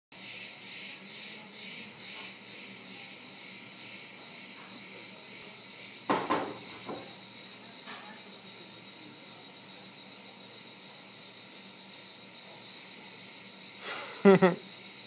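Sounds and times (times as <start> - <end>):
insects chirring: 0.2 - 15.0.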